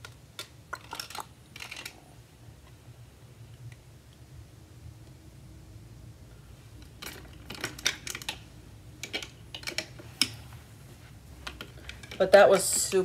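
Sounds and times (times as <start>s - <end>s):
sunglasses clicking on plastic display: 6.8s - 10.4s, 11.4s - 12.7s.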